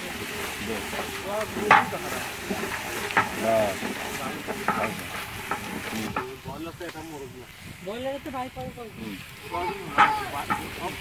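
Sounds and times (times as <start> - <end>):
curry frying in a pot: 0.0 - 11.0
stick knocking against pot: 0.7 - 7.0, 9.9 - 11.0.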